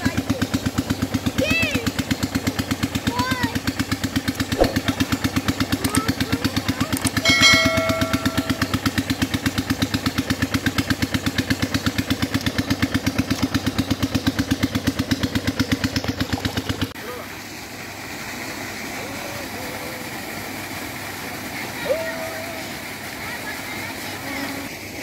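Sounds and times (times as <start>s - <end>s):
small engine chugging: 0.0s - 25.0s
brief pitched tone: 7.2s - 8.8s.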